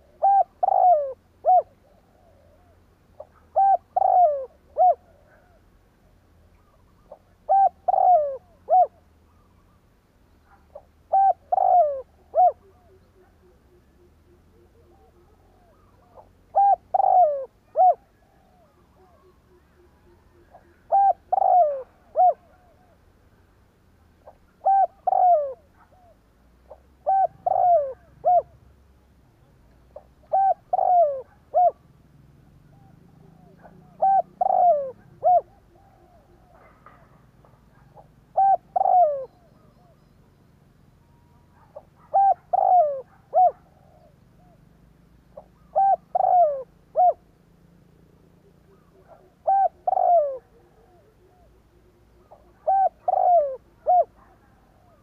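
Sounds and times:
dove cooing: 0.0s - 9.8s, 10.4s - 23.1s, 24.2s - 40.2s, 41.0s - 47.4s, 48.2s - 55.0s.

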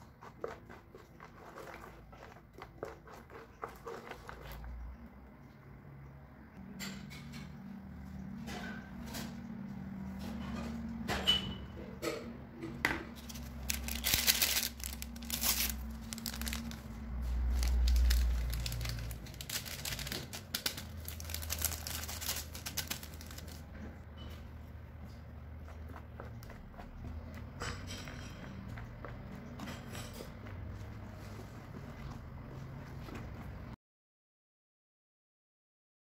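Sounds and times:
paper sachets crinkling: 13.2s - 23.7s.

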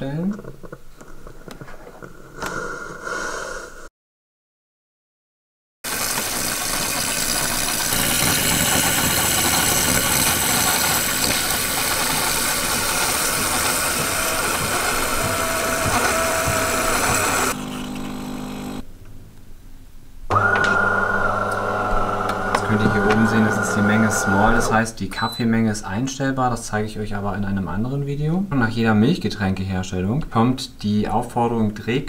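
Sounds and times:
espresso machine brewing hum: 5.9s - 18.8s, 20.3s - 24.7s
milk frother hissing and sputtering: 5.9s - 18.8s, 20.4s - 24.8s.

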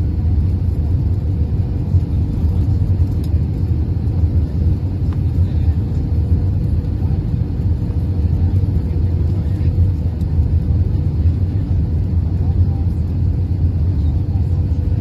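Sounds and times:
jet engines at low power: 0.0s - 15.0s.

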